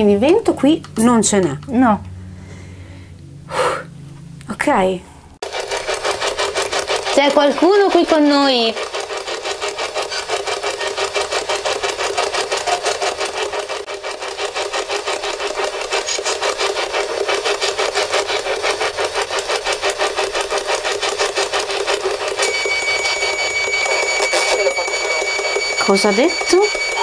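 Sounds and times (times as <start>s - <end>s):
high electronic beep: 22.4s - 27.0s
choppy radio static: 23.7s - 27.0s.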